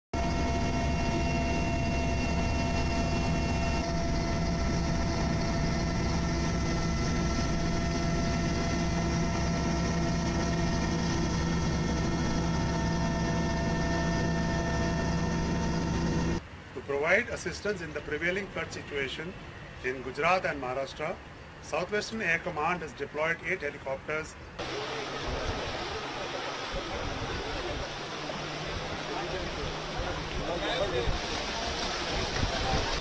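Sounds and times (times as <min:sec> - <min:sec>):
helicopter engine and rotor: 0:00.2 - 0:16.4, 0:24.6 - 0:31.0.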